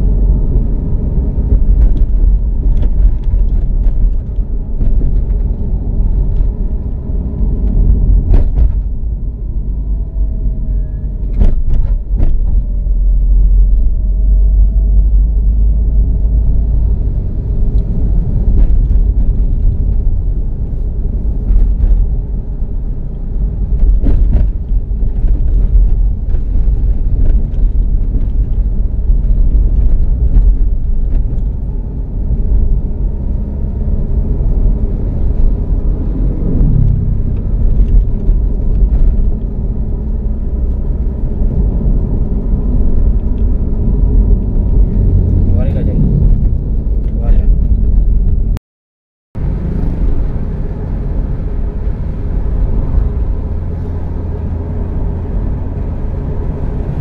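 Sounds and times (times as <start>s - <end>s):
car tyres and engine rumbling: 0.0s - 48.6s, 49.4s - 57.0s
car knocks and rattles: 0.3s - 9.2s, 11.2s - 14.0s, 23.5s - 33.3s.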